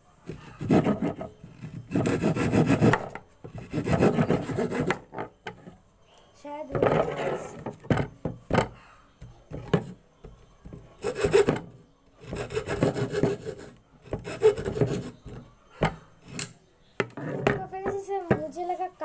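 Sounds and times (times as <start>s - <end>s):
hacksaw cutting bamboo: 0.3s - 5.2s, 11.0s - 15.4s.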